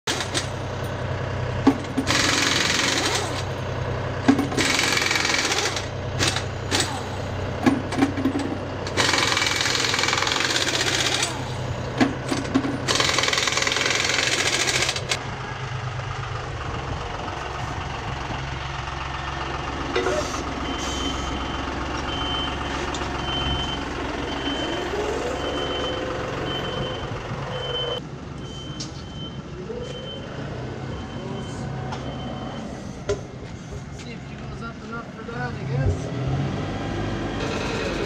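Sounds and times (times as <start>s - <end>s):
air impact wrench hammering: 1.7s - 3.5s, 4.3s - 7.0s, 8.9s - 11.4s, 12.0s - 15.2s.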